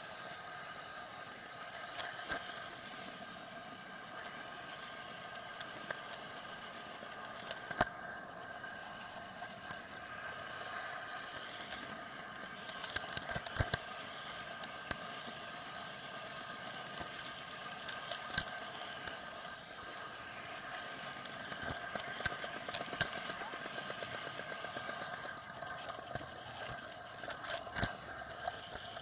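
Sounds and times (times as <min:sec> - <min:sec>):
small electric motor whine: 0:00.0 - 0:29.0
wheels clicking over rail joints: 0:19.8 - 0:29.0.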